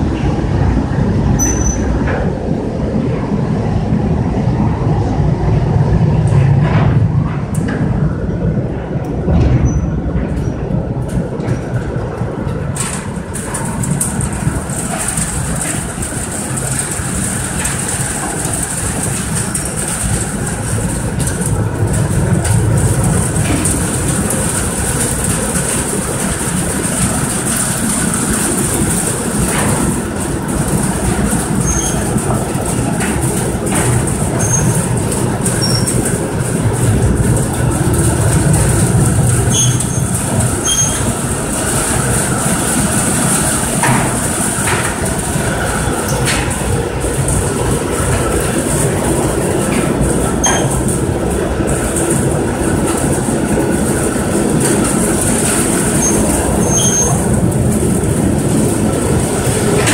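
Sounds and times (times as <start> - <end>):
belt lift mechanical rumble: 0.0 - 59.9
high squeaks: 1.4 - 1.9, 39.5 - 41.1.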